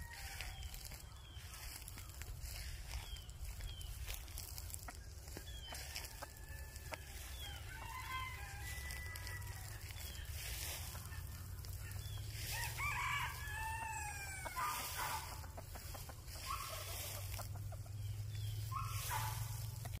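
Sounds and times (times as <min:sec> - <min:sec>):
rooster crowing: 0:00.0 - 0:01.0, 0:05.7 - 0:10.8, 0:11.8 - 0:15.8
chicken clucking: 0:00.5 - 0:20.0.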